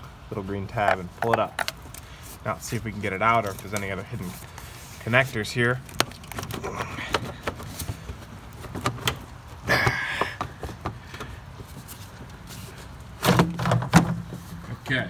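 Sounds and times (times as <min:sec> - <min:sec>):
short scraping rustle: 0:01.9 - 0:06.3, 0:11.6 - 0:13.2.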